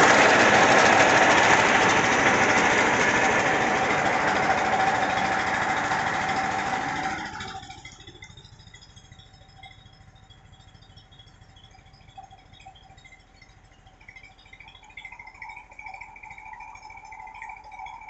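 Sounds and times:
diesel engine running: 0:00.0 - 0:08.9
faint steady hum: 0:00.0 - 0:18.0.

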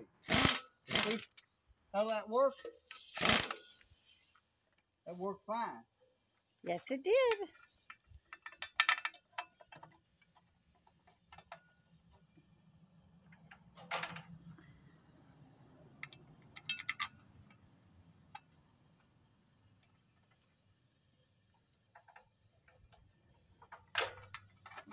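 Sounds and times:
metal clicks of tools and bolts: 0:00.3 - 0:01.6, 0:07.3 - 0:12.2, 0:13.2 - 0:14.6, 0:16.0 - 0:17.7, 0:21.9 - 0:24.9.

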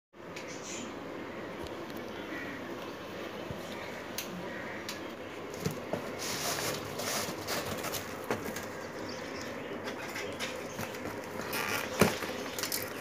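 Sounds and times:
cardboard box rustling and knocks: 0:05.6 - 0:08.7, 0:10.7 - 0:12.7.

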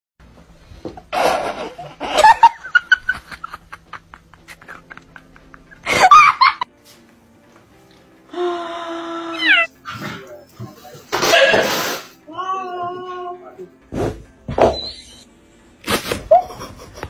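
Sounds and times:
people laughing: 0:01.1 - 0:06.7, 0:16.0 - 0:17.0.

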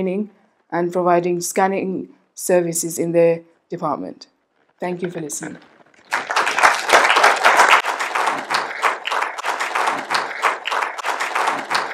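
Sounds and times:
audience applauding: 0:06.0 - 0:11.9.

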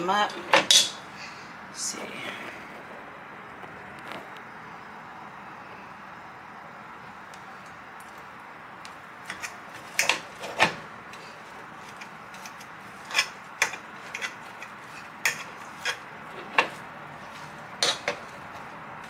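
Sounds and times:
metal fork clinking against pot: 0:00.7 - 0:01.0, 0:17.8 - 0:18.2.

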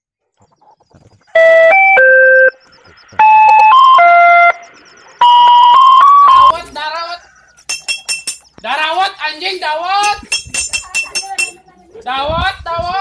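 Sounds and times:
electronic chime melody: 0:01.4 - 0:06.6.

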